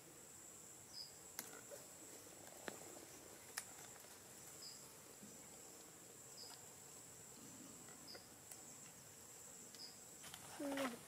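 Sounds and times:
insect trill: 0:00.0 - 0:11.0
short high insect chirp: 0:00.8 - 0:01.7, 0:04.5 - 0:05.0, 0:05.6 - 0:06.6, 0:08.0 - 0:10.7.

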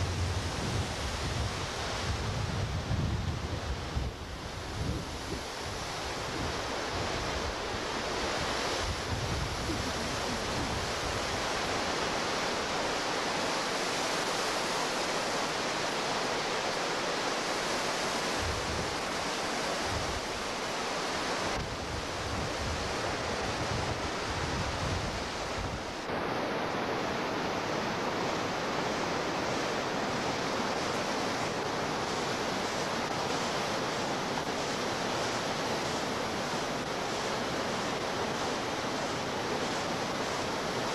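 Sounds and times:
wind buffeting microphone: 0:00.0 - 0:07.6, 0:08.3 - 0:11.8
whitewater rapids rushing: 0:04.2 - 0:40.9.

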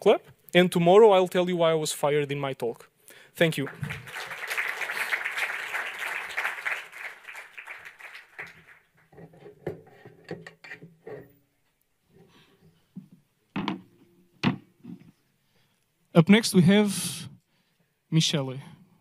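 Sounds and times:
audience applause: 0:03.5 - 0:09.0
sharp knocks: 0:13.6 - 0:14.7.

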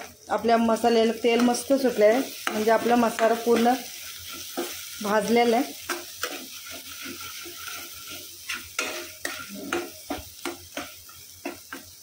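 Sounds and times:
paste sizzling in oil: 0:00.0 - 0:12.0
steel spatula scraping a pan: 0:01.4 - 0:12.0.

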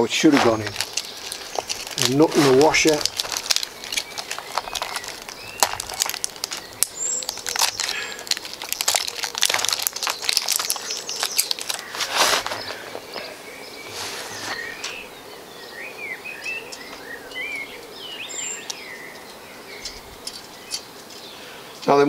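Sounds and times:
plastic bag and paper rustling: 0:00.0 - 0:15.0
small metal clicks: 0:00.7 - 0:11.9, 0:19.8 - 0:21.3
faint bird chirps: 0:10.1 - 0:22.0.

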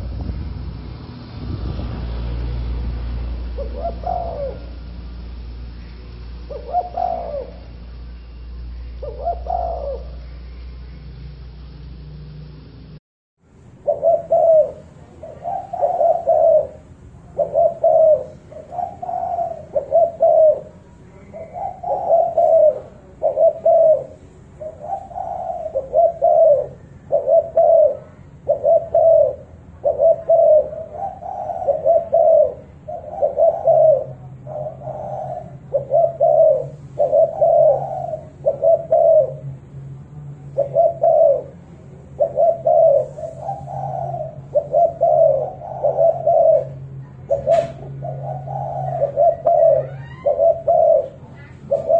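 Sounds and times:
dove cooing: 0:03.2 - 0:10.7, 0:13.8 - 0:51.9.

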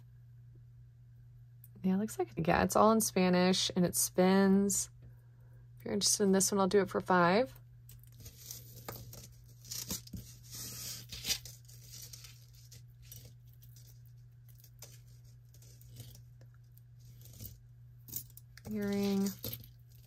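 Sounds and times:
low steady hum: 0:00.0 - 0:20.0
metal chains rustling and clinking: 0:17.0 - 0:20.0.

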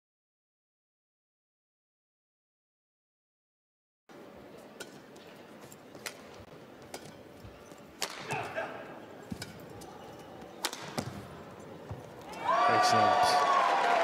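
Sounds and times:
shoes squeaking on court: 0:04.5 - 0:12.4
racquets hitting shuttlecock: 0:04.8 - 0:12.4.

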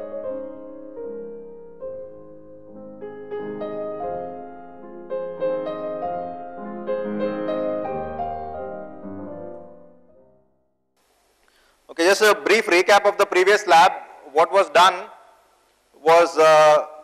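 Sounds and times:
instrumental intro music: 0:00.0 - 0:10.8.

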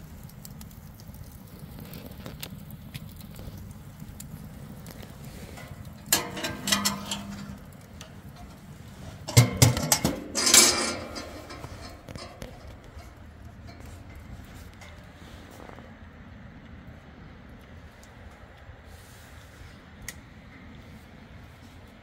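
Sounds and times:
metal objects clattering: 0:05.2 - 0:14.8.

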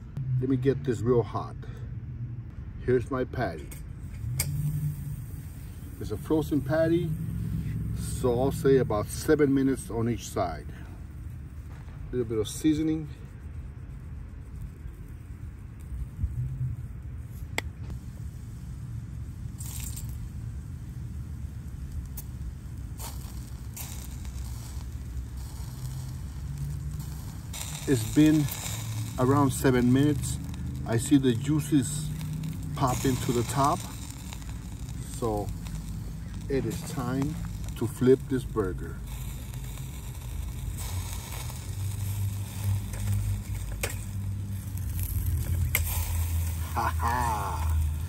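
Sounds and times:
stove low rumble: 0:00.0 - 0:48.0
wood fire crackles: 0:03.4 - 0:48.0
metal spatula scraping grill: 0:03.5 - 0:10.7, 0:23.0 - 0:48.0.

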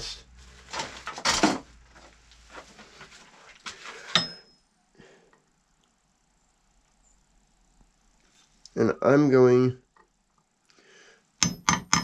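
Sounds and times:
sharp metallic clinks: 0:04.2 - 0:04.6.

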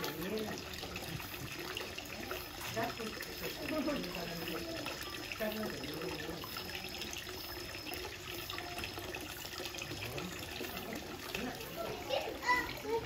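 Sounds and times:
water running down metal trough: 0:00.0 - 0:13.0.

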